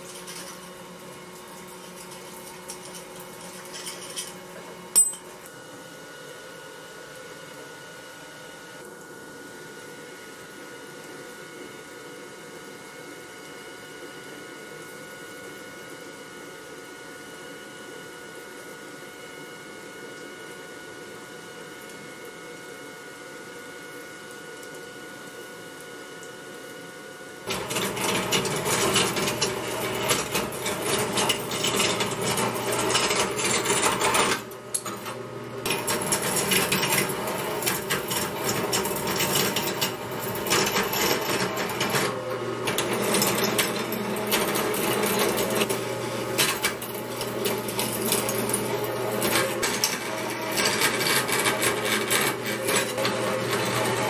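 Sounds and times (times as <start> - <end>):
bandsaw cutting metal: 27.5 - 54.0.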